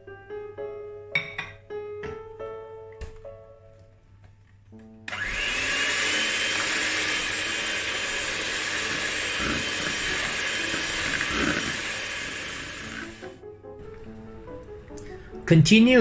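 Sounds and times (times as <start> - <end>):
electric hand mixer whining: 5.1 - 13.4.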